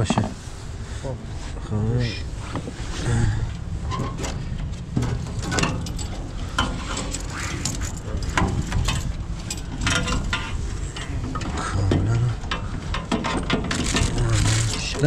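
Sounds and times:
low steady hum: 0.0 - 15.0
metal tools clicking and knocking: 5.0 - 15.0.

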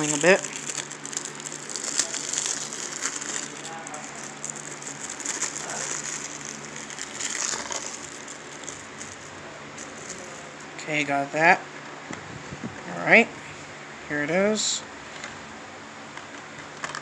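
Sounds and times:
plastic wrapping crinkling: 0.0 - 11.3.

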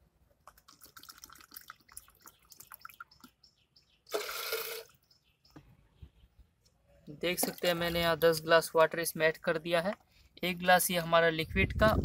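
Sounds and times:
water trickling into plastic cup: 0.3 - 3.4
water splashing into plastic jar: 0.4 - 3.4.

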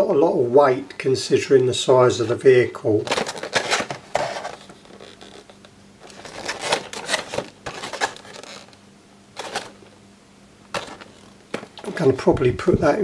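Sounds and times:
plastic packaging crackling: 3.0 - 8.8, 9.4 - 10.0, 10.7 - 12.2.

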